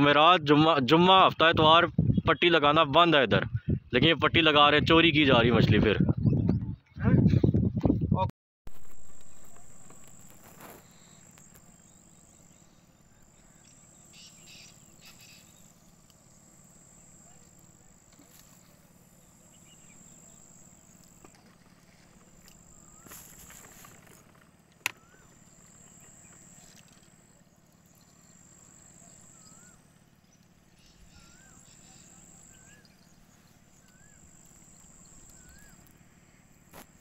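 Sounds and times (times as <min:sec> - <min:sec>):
high-pitched insect buzz: 0:08.7 - 0:24.4, 0:25.1 - 0:29.9, 0:30.8 - 0:35.9
whistled bird notes: 0:24.9 - 0:26.7, 0:29.0 - 0:29.8, 0:30.8 - 0:35.9.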